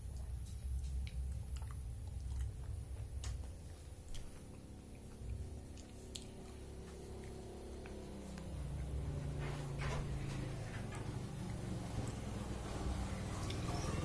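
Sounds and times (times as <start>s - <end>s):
wet squishy chewing: 0.1s - 9.5s.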